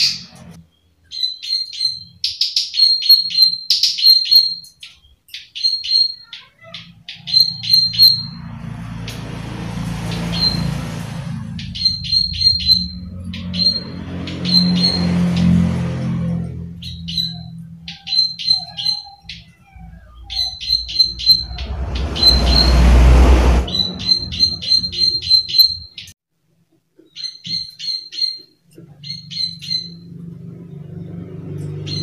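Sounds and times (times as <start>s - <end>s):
loud rushing noise: 7.6s - 16.3s, 20.4s - 25.8s.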